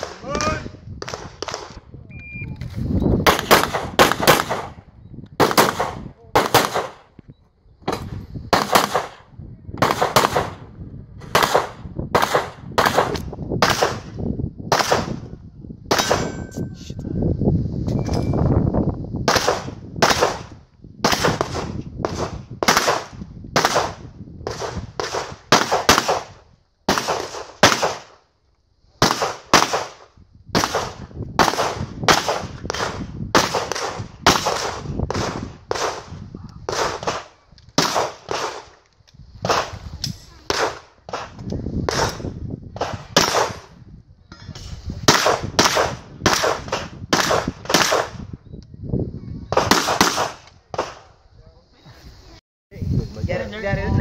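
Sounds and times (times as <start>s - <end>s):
pistol shots: 3.2s - 4.8s, 5.4s - 7.1s, 7.9s - 10.6s, 11.2s - 15.2s, 15.9s - 16.4s, 19.3s - 26.3s, 26.9s - 28.2s, 29.0s - 30.0s, 30.6s - 38.8s, 40.5s - 43.7s, 45.1s - 48.2s, 49.5s - 51.1s.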